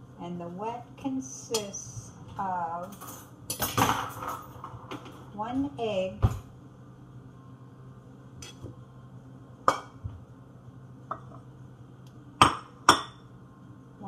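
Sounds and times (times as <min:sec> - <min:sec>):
dishes and cutlery clinking: 0:08.4 - 0:08.7.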